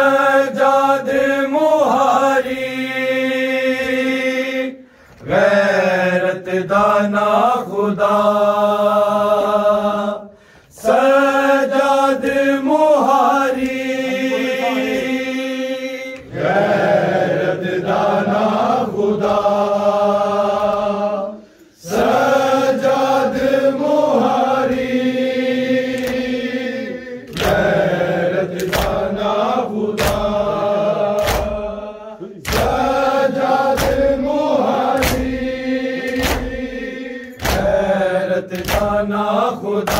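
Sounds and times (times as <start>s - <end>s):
men chanting lament: 0.0s - 39.9s
chest-beating slaps: 27.3s - 27.9s, 28.5s - 29.3s, 29.9s - 36.7s, 37.3s - 39.0s.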